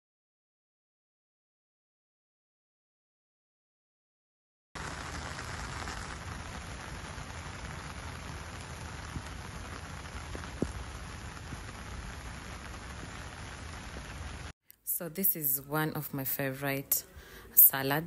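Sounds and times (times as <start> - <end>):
patter of falling water: 4.8 - 14.5.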